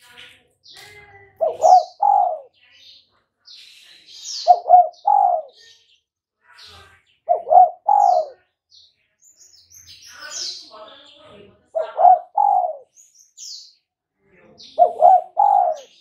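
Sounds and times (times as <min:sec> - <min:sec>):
faint high bird chirps: 0:00.0 - 0:13.9, 0:14.6 - 0:16.0
dove cooing: 0:01.4 - 0:02.5, 0:04.4 - 0:05.6, 0:07.3 - 0:08.4, 0:11.7 - 0:12.9, 0:14.8 - 0:16.0.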